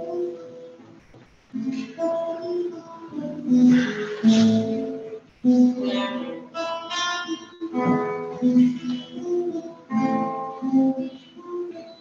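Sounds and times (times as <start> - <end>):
plucked string instrument music: 1.6 - 12.0.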